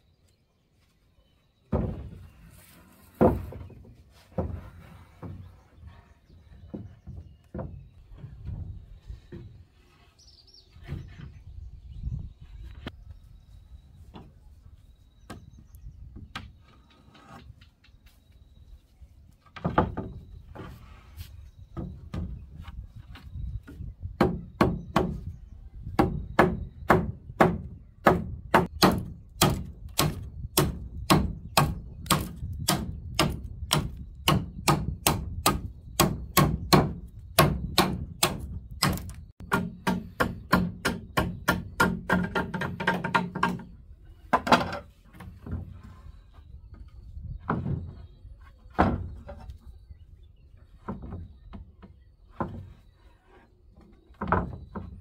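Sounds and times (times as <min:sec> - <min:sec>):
machete chopping wood: 0:26.4 - 0:42.6.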